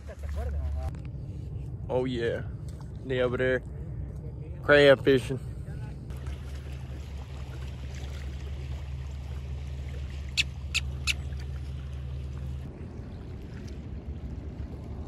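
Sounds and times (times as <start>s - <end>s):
steady low rumble: 0.0s - 15.0s
bird short sharp calls: 10.3s - 11.4s.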